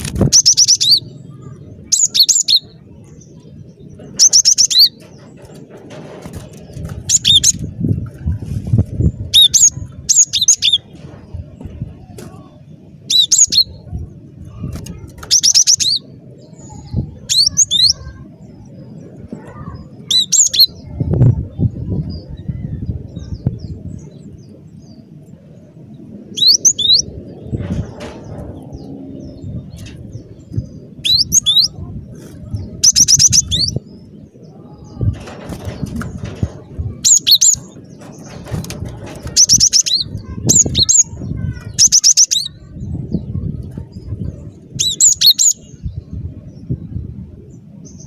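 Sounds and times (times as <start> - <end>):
low rumbling noise: 0.0 - 48.0
bird singing high-pitched notes: 0.3 - 2.8, 26.3 - 27.1, 28.8 - 31.8, 32.7 - 33.9, 39.2 - 44.0.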